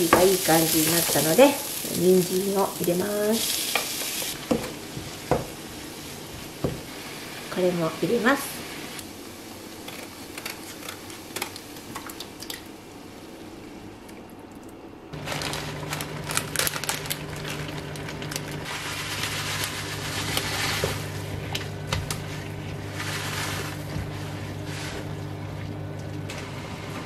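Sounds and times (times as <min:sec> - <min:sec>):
vegetables sizzling in a frying pan: 0:00.0 - 0:11.9, 0:18.6 - 0:21.4, 0:22.8 - 0:25.2
wooden spatula scraping a pan: 0:18.7 - 0:21.2, 0:22.2 - 0:25.2.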